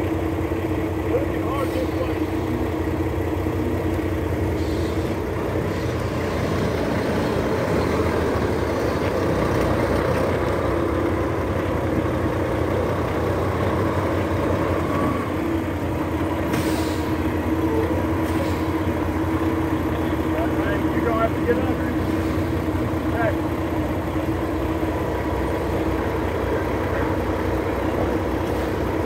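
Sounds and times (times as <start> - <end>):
truck diesel engine running: 0.0 - 29.0.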